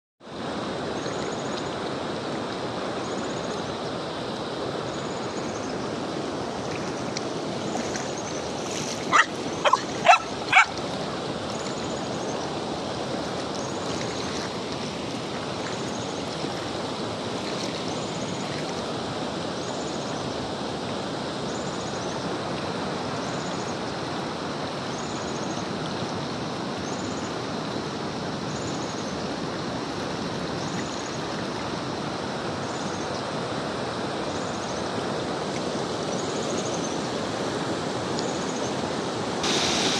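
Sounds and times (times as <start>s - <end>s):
shallow river over stones: 0.2s - 39.9s
puppy barking: 9.1s - 10.8s.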